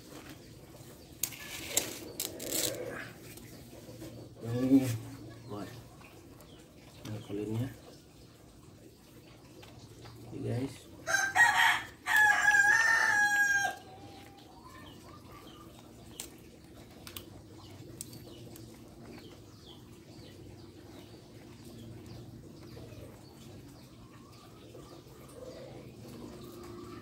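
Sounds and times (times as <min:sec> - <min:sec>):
rooster crowing: 0:11.1 - 0:13.8
faint scattered clicks: 0:16.1 - 0:17.3.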